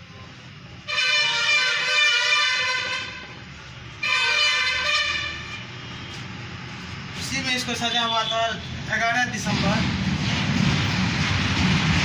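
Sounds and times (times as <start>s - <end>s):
vehicle horn honking: 0.9s - 3.4s, 4.0s - 6.2s.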